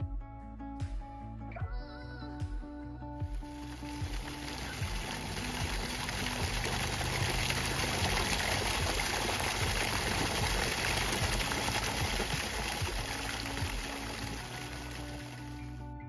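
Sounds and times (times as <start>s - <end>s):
water gushing and splashing: 3.5s - 15.7s.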